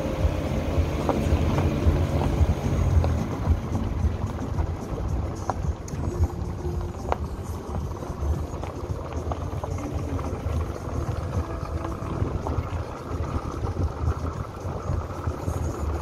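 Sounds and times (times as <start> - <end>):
vehicle rumbling on dirt track: 0.0 - 16.0.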